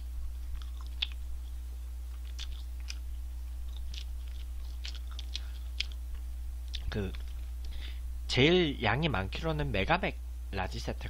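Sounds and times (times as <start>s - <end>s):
steady low hum: 0.0s - 11.0s
close-up chewing: 0.2s - 7.8s
small crunches and clicks: 0.4s - 1.5s, 2.1s - 7.8s.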